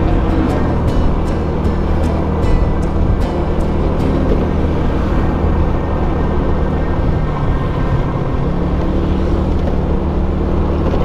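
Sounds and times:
motor scooter engine running: 0.0 - 6.8
road and wind noise: 0.0 - 11.0.

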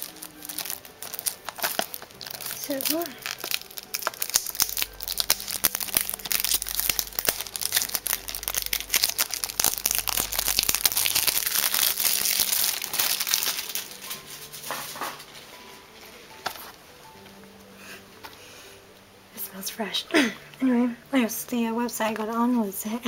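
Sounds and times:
plastic wrap crinkling and tearing: 0.0 - 16.8.

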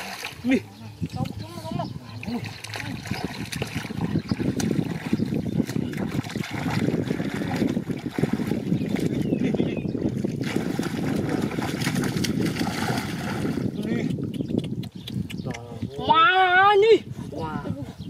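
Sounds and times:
muddy water sloshing and splashing: 0.0 - 14.4.

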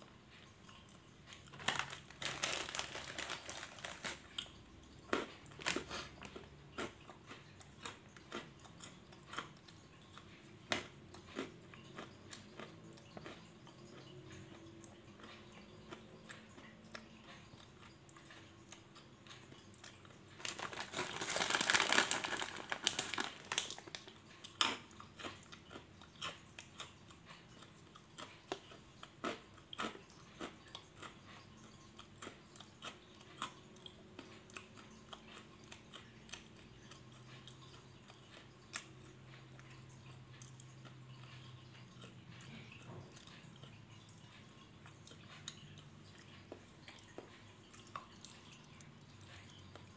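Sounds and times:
person chewing crunchy snack: 0.3 - 49.9
snack package rustling: 1.4 - 4.5, 5.1 - 6.4, 20.4 - 24.8.

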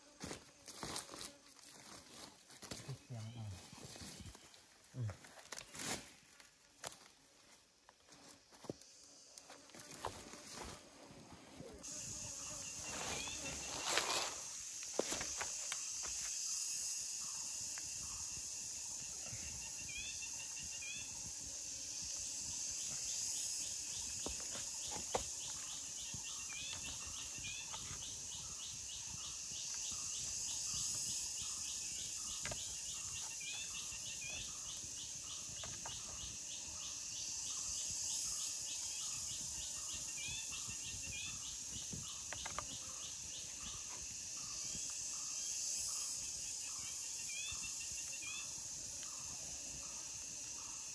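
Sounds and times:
high insect drone: 0.0 - 50.9
repeating insect pulse: 11.8 - 50.9.

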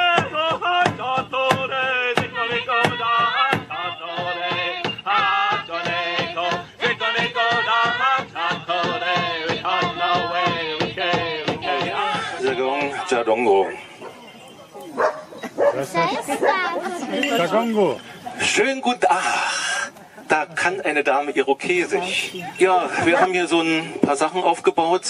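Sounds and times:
large drum steady beat: 0.0 - 13.0
group chanting: 0.4 - 14.1.

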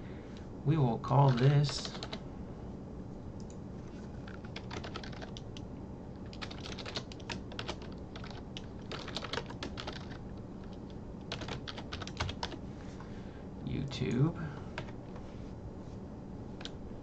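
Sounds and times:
typing on keyboard: 1.2 - 2.2, 3.4 - 5.6, 6.2 - 12.6.

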